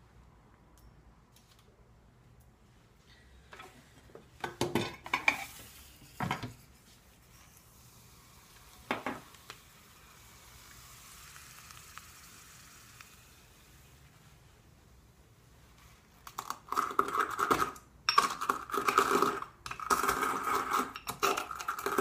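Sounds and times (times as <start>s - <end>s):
liquid nitrogen hissing: 7.8s - 14.2s.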